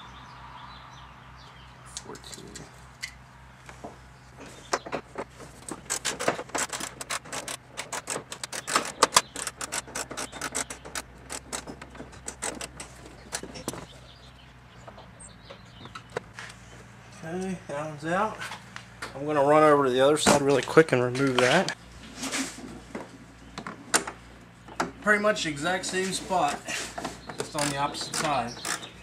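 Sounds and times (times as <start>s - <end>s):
socket ratchet clicking: 5.9s - 13.5s.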